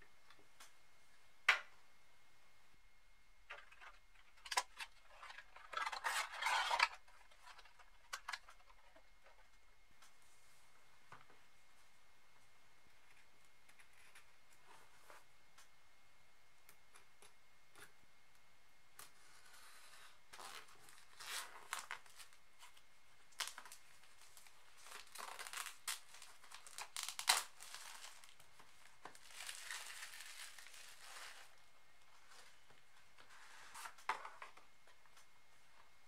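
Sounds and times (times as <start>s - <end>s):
plastic shrink wrap crinkling and tearing: 3.5s - 9.4s, 19.0s - 34.6s
shrink wrap snapping: 23.3s - 31.5s.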